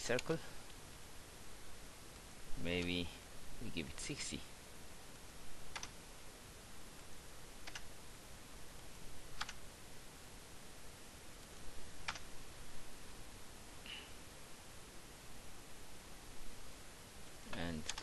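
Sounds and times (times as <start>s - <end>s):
faint steady hiss: 0.0s - 18.0s
keyboard and mouse clicks: 5.7s - 6.0s, 7.6s - 7.9s, 9.4s - 9.6s, 12.0s - 12.3s, 17.5s - 18.0s.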